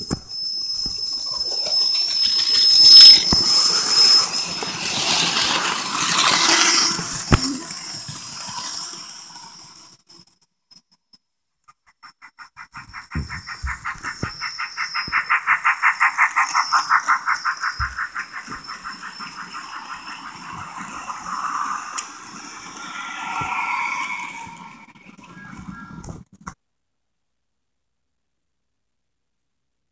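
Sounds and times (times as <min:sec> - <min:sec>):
electric motor whine: 0:00.7 - 0:09.8
wheels rushing on track: 0:01.0 - 0:10.4, 0:12.0 - 0:26.3.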